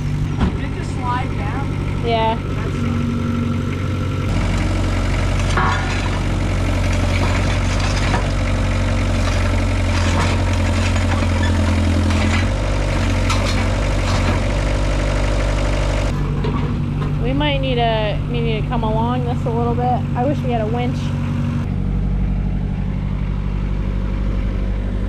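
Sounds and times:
excavator engine under load: 0.0 - 25.0.

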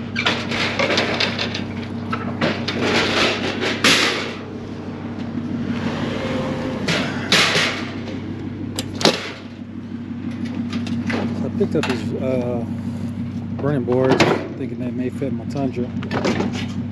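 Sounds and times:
sheet metal clatter: 0.0 - 4.5, 6.1 - 9.5
metal tailgate clanking and rattling: 0.0 - 12.7, 13.6 - 14.8, 15.9 - 16.9
steady low hum: 0.0 - 16.9.

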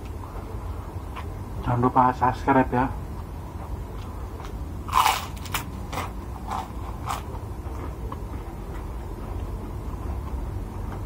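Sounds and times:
person chewing food: 3.9 - 11.0.

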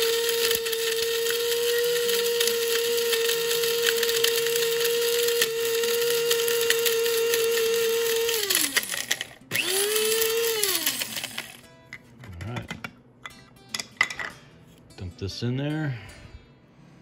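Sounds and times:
coffee grinder motor whine: 0.0 - 11.6.

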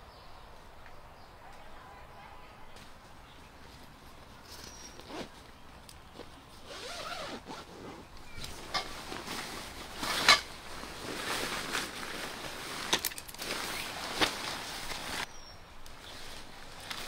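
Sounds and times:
tent fabric rustling: 3.8 - 15.3, 15.9 - 17.0.

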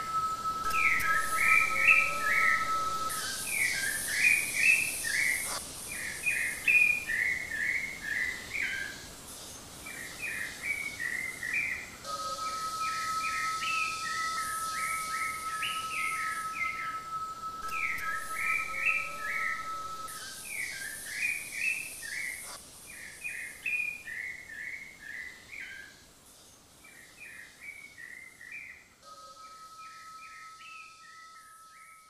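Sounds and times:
steady high tone: 0.0 - 5.6, 12.0 - 20.3
songbird chirping: 0.0 - 32.0.

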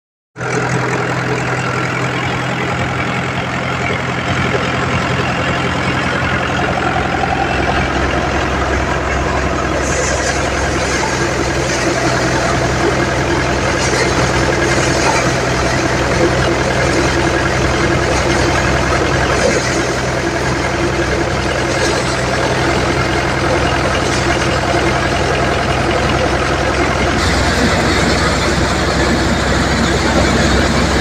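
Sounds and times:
thresher drum whirring: 0.4 - 31.0
tractor diesel engine running: 0.4 - 31.0.

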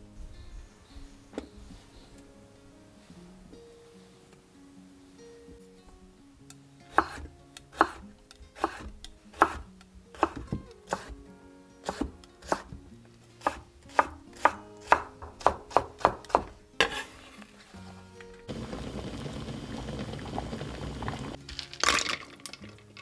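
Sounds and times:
knife chopping on cutting board: 6.9 - 7.2, 7.8 - 8.0, 8.6 - 9.6, 10.2 - 11.1, 11.8 - 12.7, 13.4 - 17.1.

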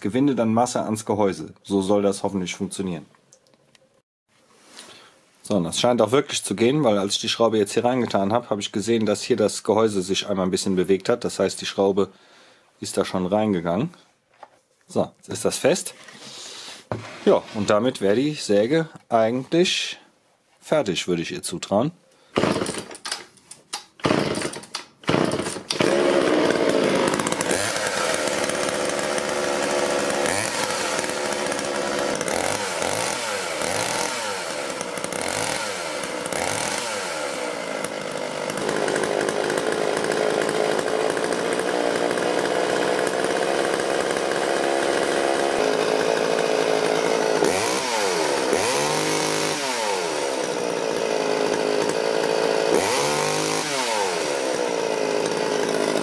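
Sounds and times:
chainsaw engine revving: 22.4 - 23.0, 24.0 - 56.0.

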